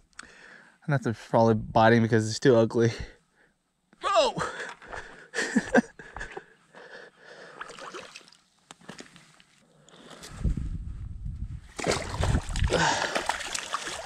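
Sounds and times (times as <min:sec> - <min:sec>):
wind buffeting the microphone: 0:10.3 - 0:12.9.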